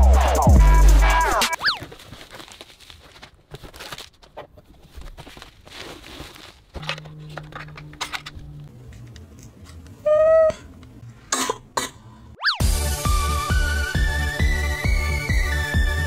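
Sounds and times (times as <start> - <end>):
bubble wrap and cardboard rustling: 1.6 - 7.9.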